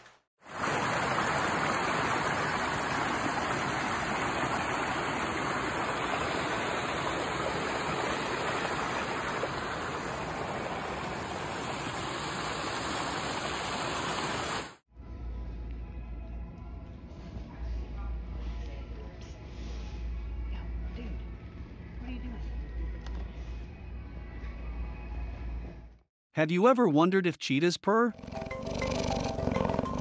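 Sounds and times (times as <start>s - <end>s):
stream rushing over rocks: 0.5s - 14.8s.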